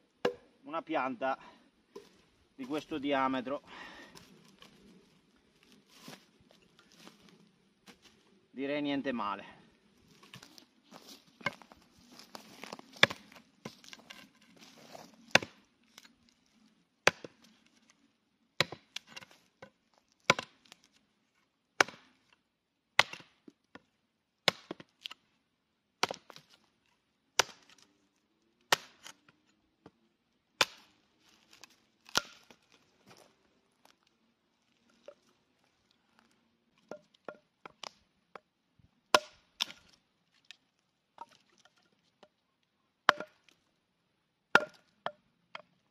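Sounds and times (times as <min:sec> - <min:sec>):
tomahawk chopping wood: 0:00.2 - 0:00.5, 0:12.6 - 0:14.2, 0:15.3 - 0:15.6, 0:17.0 - 0:17.4, 0:18.6 - 0:20.7, 0:21.8 - 0:22.2, 0:23.0 - 0:23.5, 0:24.4 - 0:25.2, 0:26.0 - 0:26.6, 0:27.4 - 0:27.8, 0:28.7 - 0:29.2, 0:30.6 - 0:32.6, 0:39.1 - 0:40.0, 0:43.1 - 0:43.5, 0:44.5 - 0:45.7.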